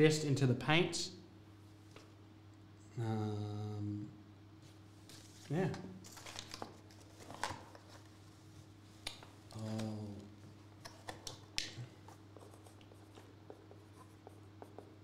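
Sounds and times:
low electrical hum: 0.0s - 15.0s
person humming: 2.9s - 4.2s, 9.5s - 10.3s.

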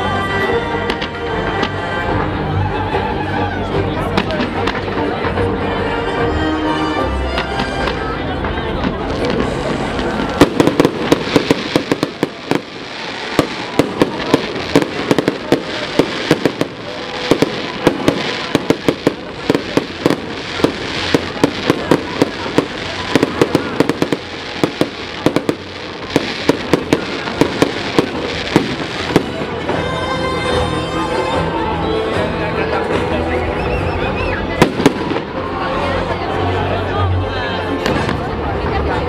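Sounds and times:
fireworks bangs and crackles: 0.4s - 2.4s, 3.9s - 5.6s, 7.4s - 30.4s, 34.5s - 36.4s, 37.8s - 39.0s.

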